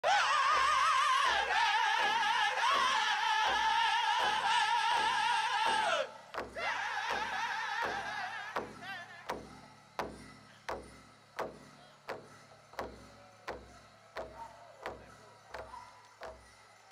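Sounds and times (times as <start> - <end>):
group singing in high voices: 0.0 - 9.2
big drum beating: 0.4 - 16.5.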